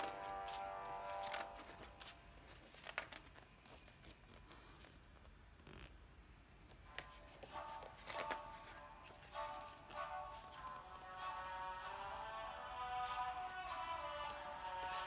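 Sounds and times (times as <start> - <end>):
soft music: 0.0 - 4.1, 6.8 - 15.0
book pages rustling and turning: 0.0 - 11.1, 13.2 - 15.0.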